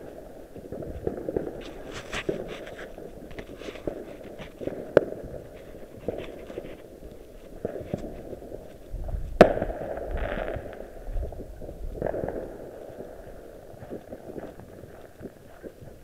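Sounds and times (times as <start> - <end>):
small crackles and pops: 0.0 - 16.0
firework bang with rumble: 7.6 - 12.7.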